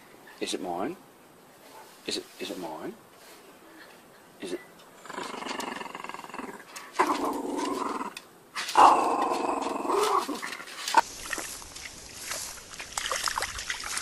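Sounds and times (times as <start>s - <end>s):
small dog growling: 5.0s - 11.0s.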